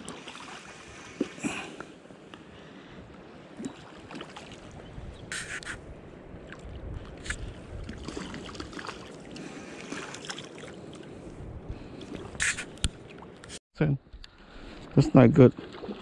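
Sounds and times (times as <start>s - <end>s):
water sloshing and splashing: 0.0s - 2.1s, 3.2s - 5.7s, 6.3s - 13.6s, 14.2s - 16.0s
short hissing splashes: 5.3s - 5.8s.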